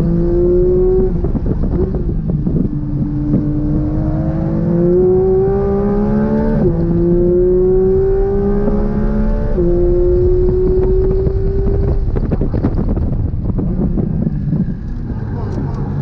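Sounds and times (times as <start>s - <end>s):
car engine at full throttle: 0.0s - 16.0s
road and wind noise: 0.0s - 16.0s.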